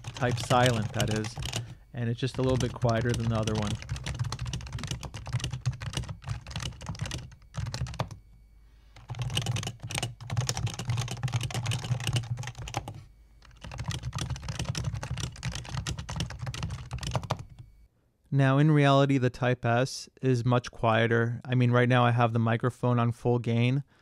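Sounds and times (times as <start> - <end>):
fast typing on keyboard: 0.0 - 8.2, 9.0 - 17.6.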